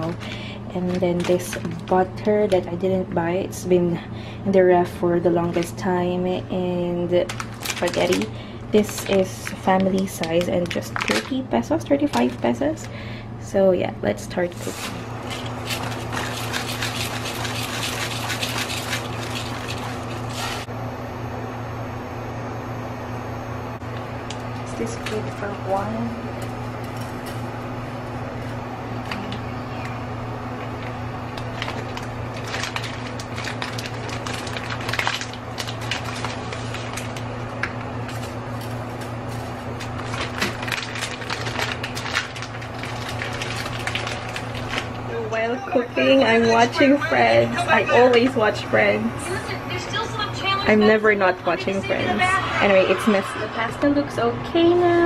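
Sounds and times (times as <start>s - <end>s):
steady low hum: 0.0s - 55.0s
crackling and clicking from pan: 30.8s - 45.0s.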